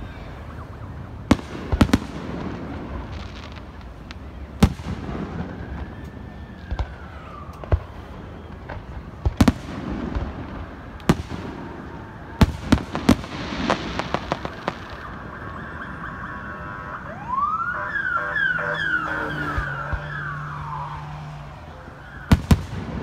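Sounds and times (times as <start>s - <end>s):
fireworks crackling: 1.1s - 23.0s
fireworks bangs: 1.2s - 23.0s
wailing firework whistle: 5.2s - 8.9s, 11.4s - 21.3s.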